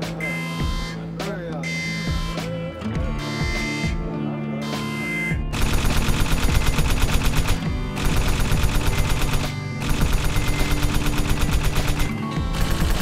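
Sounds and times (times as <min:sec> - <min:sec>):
automatic rifle gunfire: 0:05.5 - 0:13.0.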